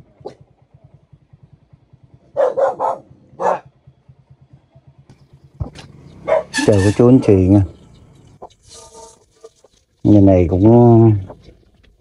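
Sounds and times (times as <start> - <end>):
dog barking: 2.3 - 3.8, 6.2 - 6.7.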